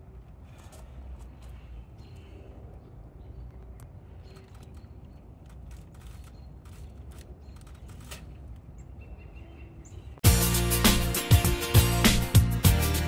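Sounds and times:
small clicks and crackles: 3.5s - 8.7s.

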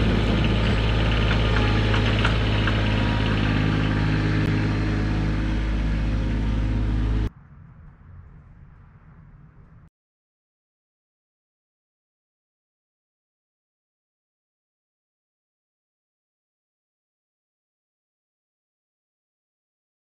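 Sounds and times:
engine idling: 0.0s - 7.3s.

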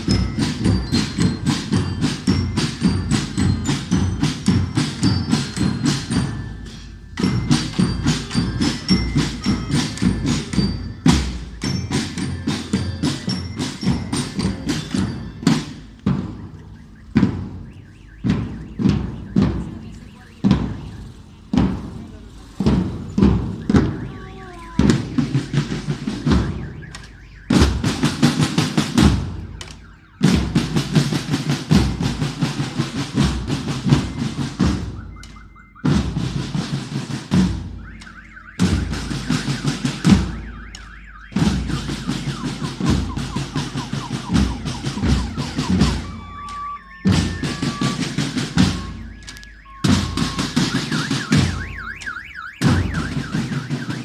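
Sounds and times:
bell lyres ringing: 0.0s - 54.0s
marching band playing: 0.0s - 54.0s
snare and bass drums beating: 0.0s - 54.0s.

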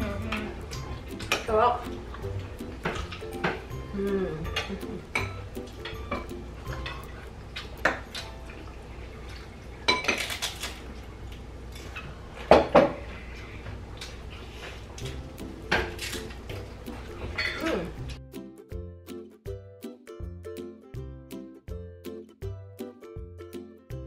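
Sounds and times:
cutlery clinking on plates: 17.2s - 17.8s.

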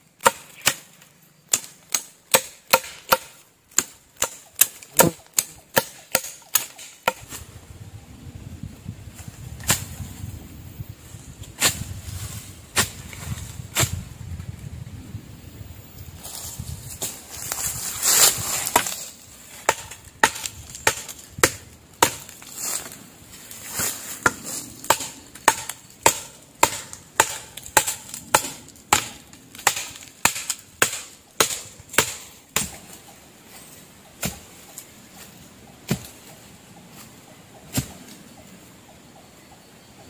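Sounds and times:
wood chopping by hand: 0.2s - 0.9s, 1.5s - 7.3s, 18.2s - 19.0s, 19.6s - 22.9s, 24.2s - 33.0s, 34.2s - 34.6s, 35.8s - 36.3s, 37.7s - 38.0s.

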